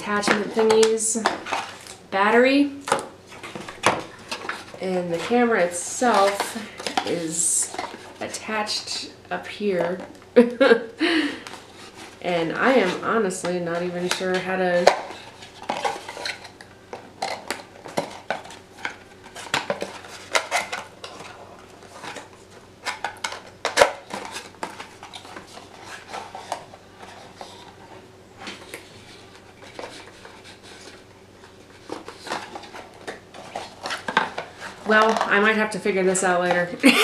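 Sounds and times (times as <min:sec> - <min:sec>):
cardboard rustling: 0:03.2 - 0:08.2, 0:11.5 - 0:16.6, 0:17.2 - 0:35.4.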